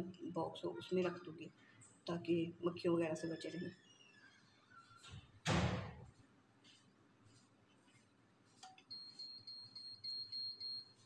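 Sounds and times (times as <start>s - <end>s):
sterilizer high beeps: 8.9s - 11.0s.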